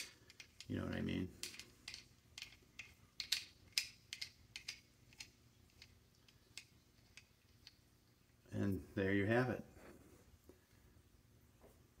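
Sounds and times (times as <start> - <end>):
metal nut clicking as turned: 0.0 - 7.8.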